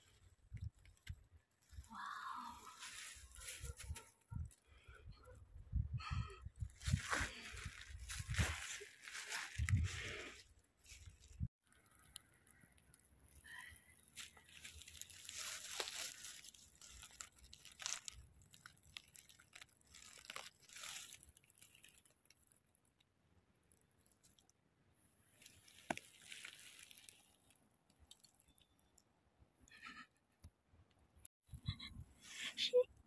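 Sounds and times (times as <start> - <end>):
dry leaves crunching and rustling: 1.6 - 4.2, 6.8 - 11.4, 14.0 - 22.4, 25.4 - 27.6.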